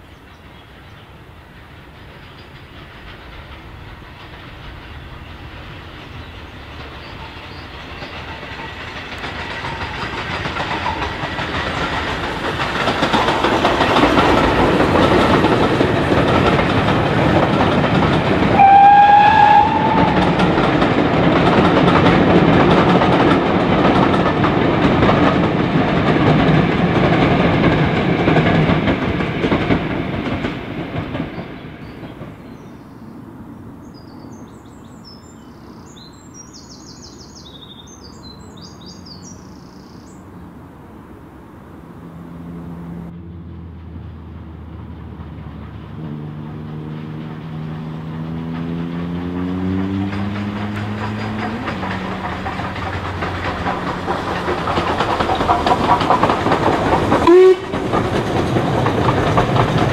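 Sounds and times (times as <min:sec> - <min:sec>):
steam locomotive passing: 0:00.0 - 0:59.9
steam whistle blast: 0:18.6 - 0:20.4, 0:57.2 - 0:57.8.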